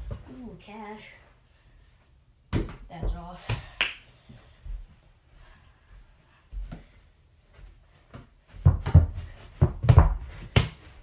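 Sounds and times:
dull thuds and knocks: 8.6 - 10.9.

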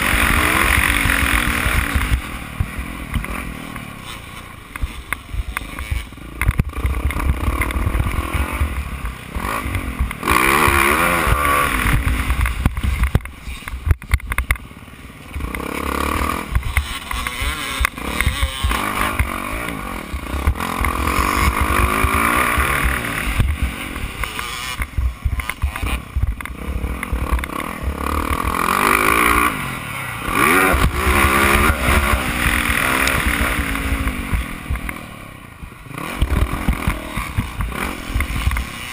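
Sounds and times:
motocross bike engine revving: 0.0 - 38.9.

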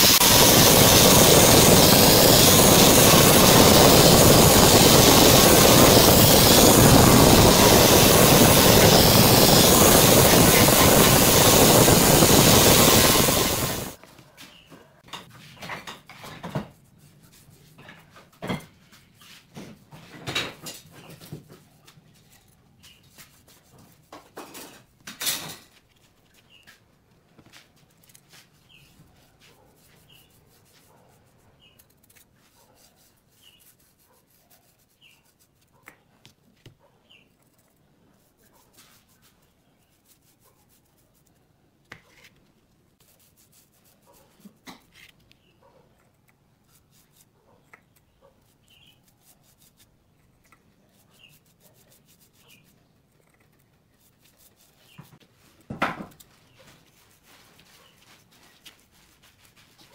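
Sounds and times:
paintbrush rubbing on wood: 0.0 - 20.1, 20.8 - 25.0, 25.7 - 42.4, 43.0 - 59.9.

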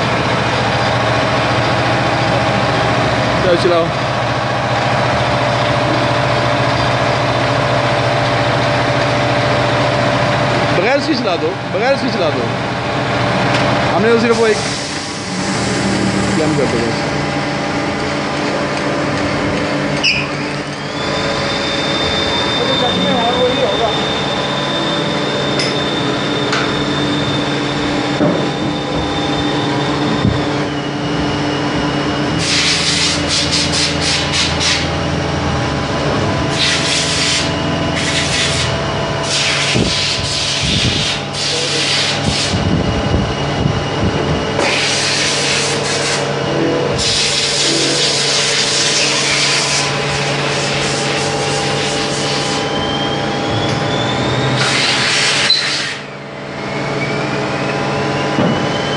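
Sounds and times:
lathe humming with high whine: 0.0 - 58.9
tool cutting metal hissing scraping: 14.1 - 17.0, 32.4 - 35.0, 36.5 - 42.7, 44.6 - 52.7, 54.5 - 56.1.

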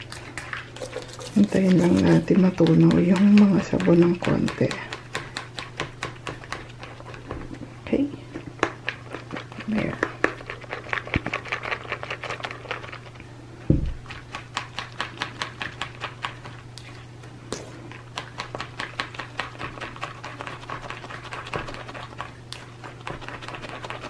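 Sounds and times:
heavy thud: 13.7 - 14.0.

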